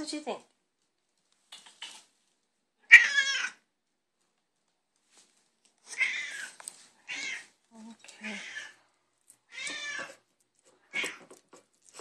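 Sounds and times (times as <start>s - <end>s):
cat meowing: 2.9s - 3.6s, 5.9s - 7.5s, 8.3s - 8.8s, 9.5s - 10.2s, 10.9s - 11.3s.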